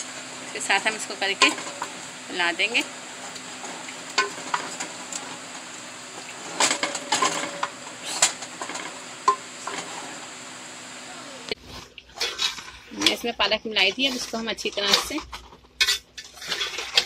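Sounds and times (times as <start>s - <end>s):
curry sizzling: 0.0s - 11.6s.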